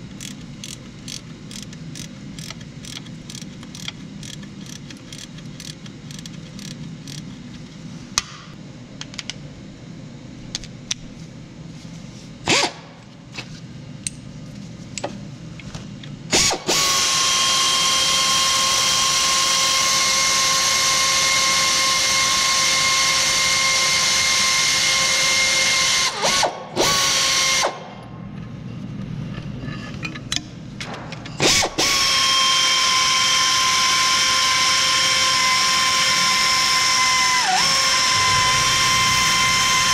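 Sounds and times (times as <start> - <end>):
power ratchet whining: 0.0 - 7.4, 33.9 - 39.9.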